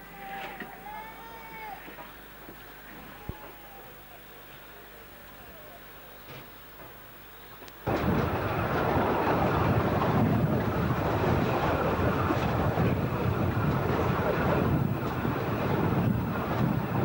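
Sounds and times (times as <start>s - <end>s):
passenger train running: 7.9s - 17.0s
wind buffeting microphone: 7.9s - 17.0s.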